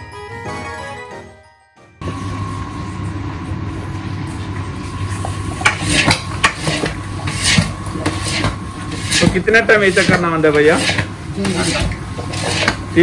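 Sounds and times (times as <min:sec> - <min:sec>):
background music: 0:00.0 - 0:02.0
steady hum: 0:00.0 - 0:13.0
metal paddle scraping a pot: 0:05.6 - 0:12.9.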